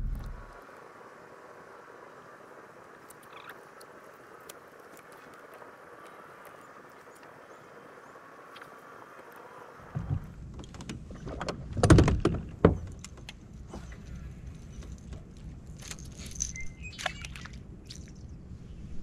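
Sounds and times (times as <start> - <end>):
low steady rumble: 0.0 - 0.6.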